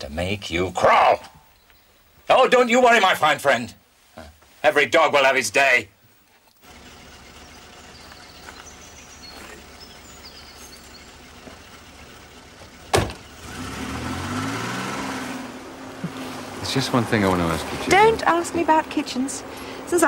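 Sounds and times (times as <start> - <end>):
car engine pulling away: 6.6 - 20.0.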